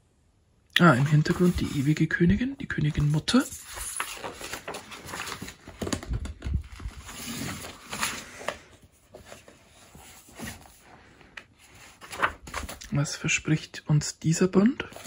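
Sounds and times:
paper rustling and crackling: 1.0 - 2.2, 2.8 - 12.9.

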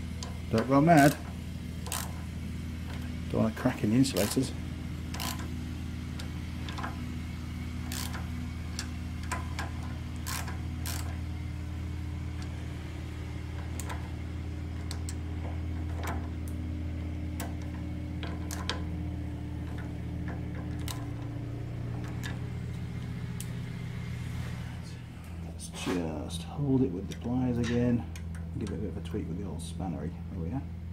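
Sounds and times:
steady low hum: 0.0 - 30.9
socket ratchet clicking: 1.8 - 2.2, 5.1 - 5.5, 7.8 - 11.2.

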